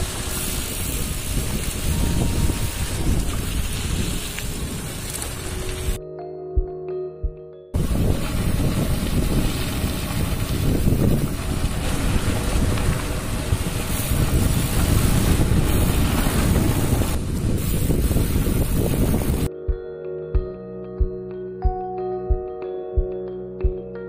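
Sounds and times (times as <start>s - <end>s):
wind buffeting microphone: 0.0s - 6.0s, 7.7s - 19.5s.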